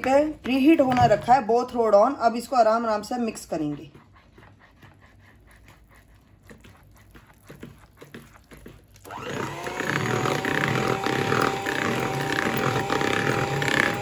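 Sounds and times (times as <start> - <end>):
electric hand mixer running: 9.0 - 14.0.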